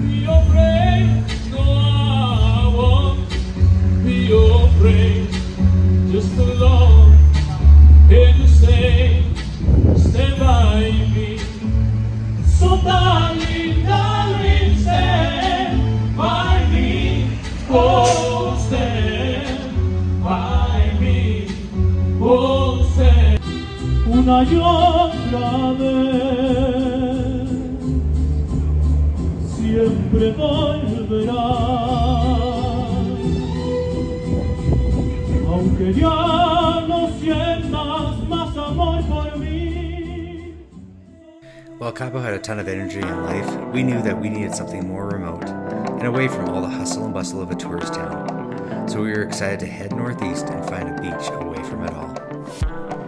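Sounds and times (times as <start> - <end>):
man singing with vibrato: 0.0 - 11.8, 12.4 - 28.0, 29.4 - 33.4, 35.3 - 53.0
heavy bass line: 0.0 - 40.6
live singing with band: 12.5 - 23.4.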